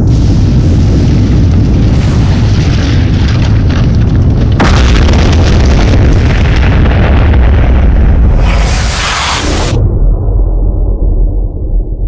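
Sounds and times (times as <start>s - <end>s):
deep volcanic rumble: 0.0s - 12.0s
eruption blast: 0.0s - 12.0s
loud rushing hiss: 8.3s - 9.8s.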